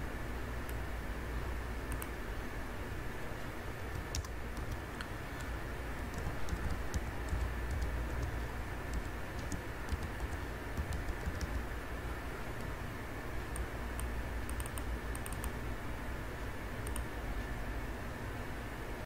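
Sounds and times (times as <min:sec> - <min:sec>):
low background hum: 0:00.0 - 0:19.0
keyboard typing: 0:01.9 - 0:02.1, 0:03.9 - 0:11.8, 0:13.5 - 0:15.6, 0:16.8 - 0:17.1
mouse clicks: 0:01.9 - 0:02.1, 0:13.5 - 0:15.6, 0:16.8 - 0:17.1.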